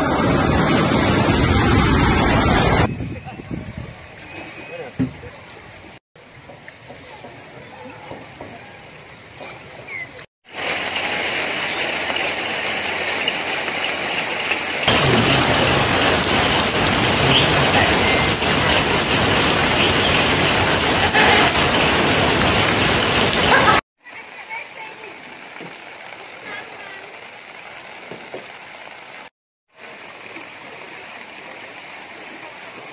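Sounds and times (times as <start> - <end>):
heavy rain falling: 0.0 - 32.9.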